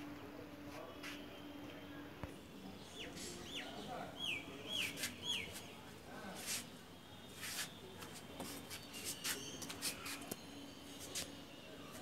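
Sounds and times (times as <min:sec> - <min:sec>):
birds chirping: 0:02.6 - 0:05.9, 0:08.6 - 0:12.0.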